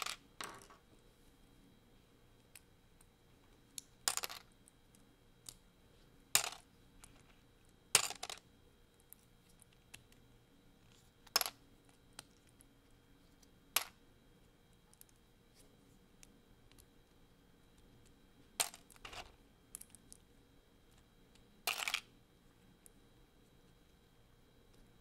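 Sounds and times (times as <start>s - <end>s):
plastic bricks clicking and snapping: 21.7s - 22.1s.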